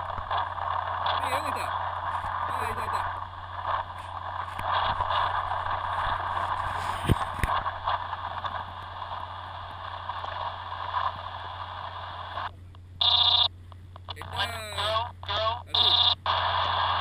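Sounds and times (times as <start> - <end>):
electric motor and propeller whirring: 0.0 - 11.4.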